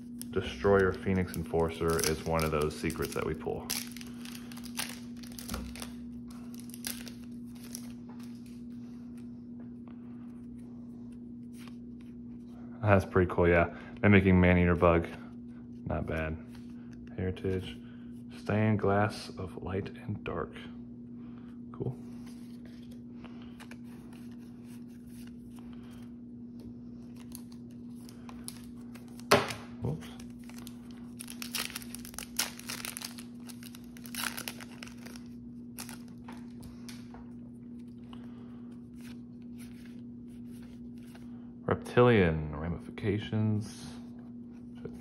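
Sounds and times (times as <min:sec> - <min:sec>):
foil wrapper tearing and crinkling: 0:00.0 - 0:08.6, 0:27.1 - 0:37.0
cards rustling: 0:00.0 - 0:09.3, 0:22.1 - 0:38.0
steady low hum: 0:00.0 - 0:45.0.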